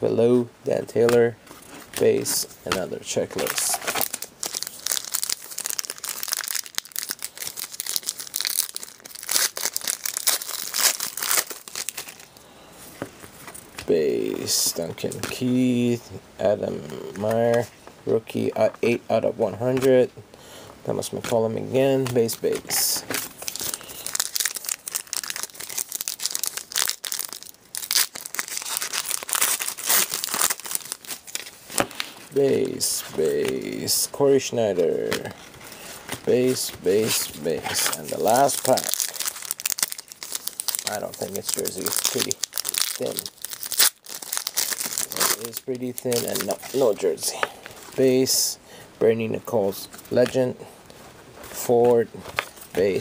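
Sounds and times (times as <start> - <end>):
wrapper crinkling and tearing: 1.8 - 12.4, 22.0 - 34.1, 35.0 - 48.2.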